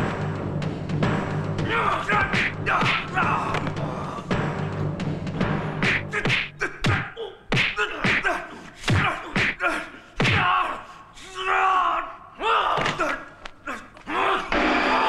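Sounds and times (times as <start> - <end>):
fighter shouting or grunting: 1.6 - 4.3, 5.8 - 15.0
punch and kick impacts: 5.8 - 8.3, 8.9 - 9.6, 10.2 - 10.6.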